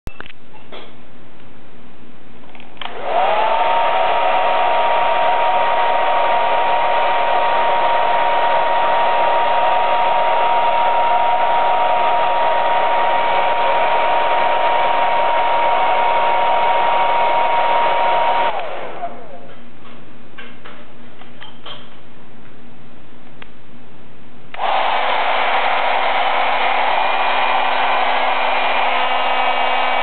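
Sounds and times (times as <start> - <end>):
hair dryer motor whine: 2.8 - 19.5, 24.6 - 30.0
blown air rushing: 24.6 - 30.0.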